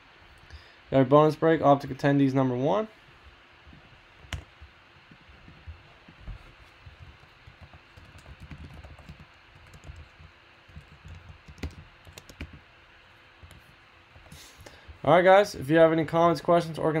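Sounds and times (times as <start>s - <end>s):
computer keyboard typing: 6.8s - 12.7s.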